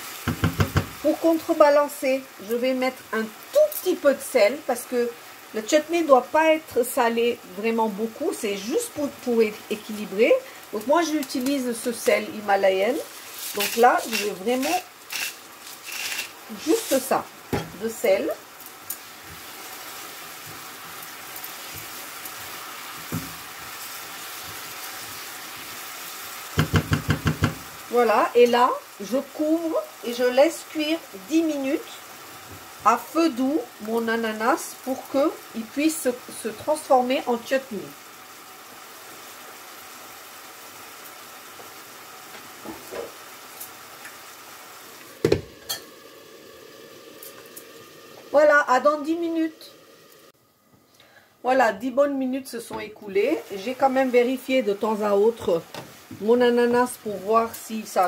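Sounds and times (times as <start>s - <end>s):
fruit sizzling in a frying pan: 0.0s - 58.0s
knocks: 0.3s - 0.9s
spatula stirring: 12.9s - 17.8s, 18.9s - 25.8s.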